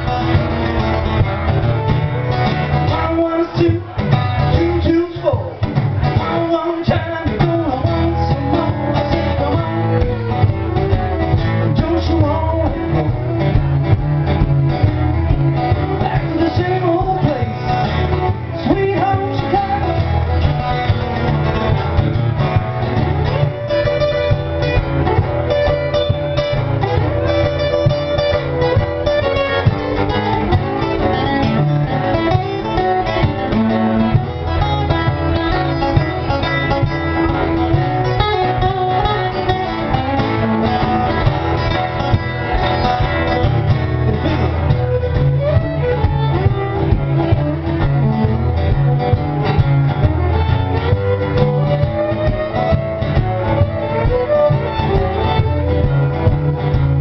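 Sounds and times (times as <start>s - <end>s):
acoustic guitars strumming: 0.0s - 57.0s
fiddle playing: 0.0s - 57.0s
person singing: 2.8s - 10.5s.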